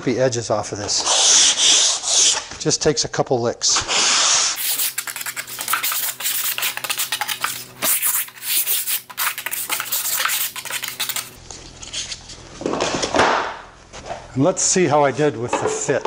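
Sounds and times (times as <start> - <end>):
sandpaper rasping on an edge: 1.0 - 2.4, 3.9 - 11.4.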